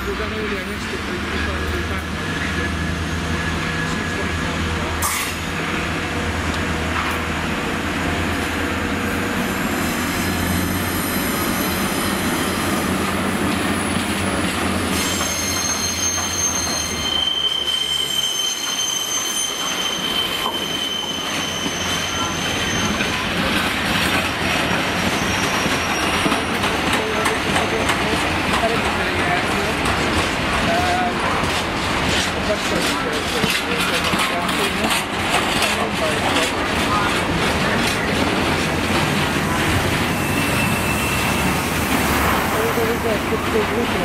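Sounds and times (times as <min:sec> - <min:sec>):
wagon wheels squealing: 0:10.0 - 0:27.9, 0:32.0 - 0:44.0.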